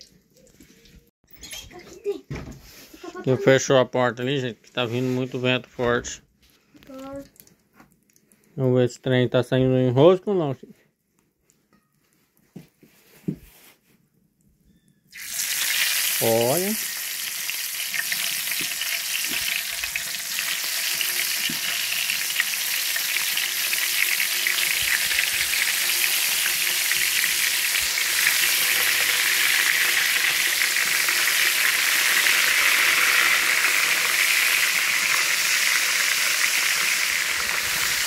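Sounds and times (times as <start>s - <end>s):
fish sizzling in hot oil: 15.1s - 38.0s.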